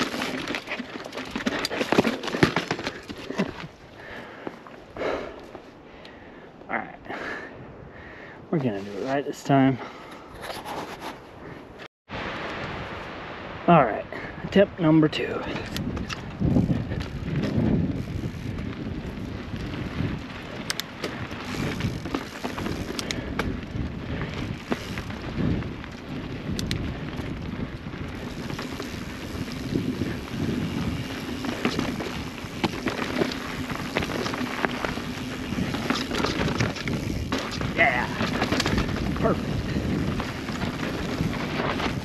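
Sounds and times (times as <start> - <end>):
bike clicks and rattles: 0.0 - 6.1, 15.2 - 42.0
wind rush on microphone: 11.4 - 42.0
tyres rumbling on dirt: 15.9 - 42.0.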